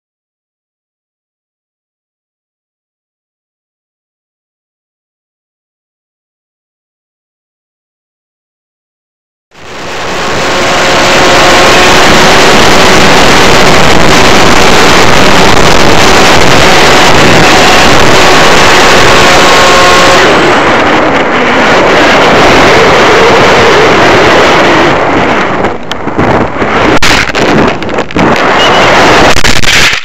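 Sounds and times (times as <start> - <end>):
wind and propeller rushing: 9.5 - 30.0
knocks and crackles: 25.5 - 30.0.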